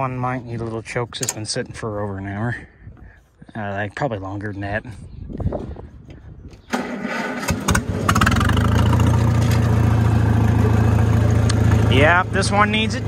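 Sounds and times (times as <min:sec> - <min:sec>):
tractor starter cranking: 0:01.1 - 0:01.8, 0:06.7 - 0:10.0
tractor engine idling: 0:06.7 - 0:13.0.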